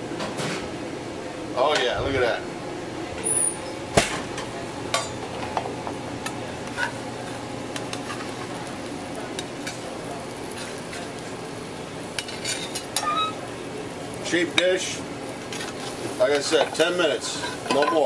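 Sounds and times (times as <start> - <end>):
pan sizzling: 6.3 - 18.0.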